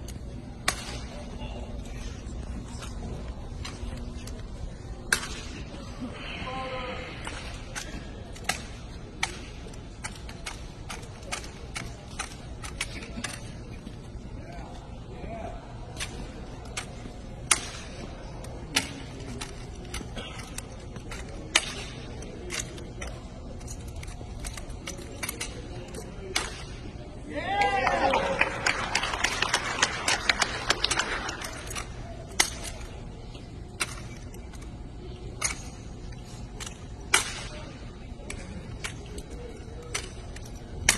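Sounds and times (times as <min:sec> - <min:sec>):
low hall hum: 0:00.0 - 0:40.9
rifle slaps and clacks: 0:07.2 - 0:13.4, 0:17.5 - 0:18.0, 0:31.0 - 0:32.9.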